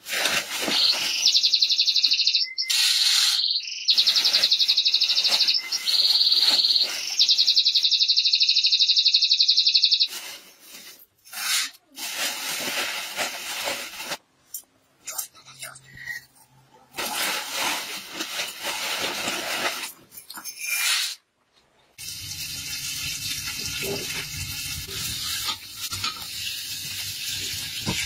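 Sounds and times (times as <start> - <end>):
small animal chirping trill: 0.8 - 10.1.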